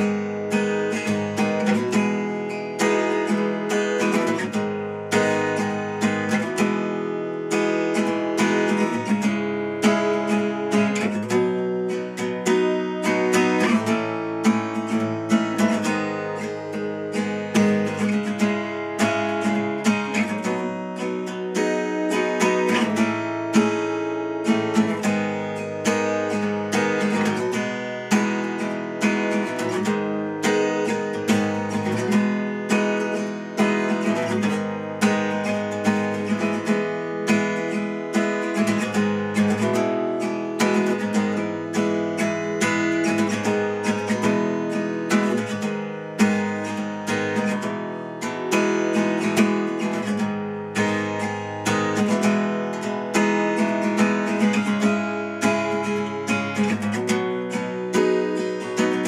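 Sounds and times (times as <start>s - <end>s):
acoustic guitar picking chords: 0.0s - 59.0s.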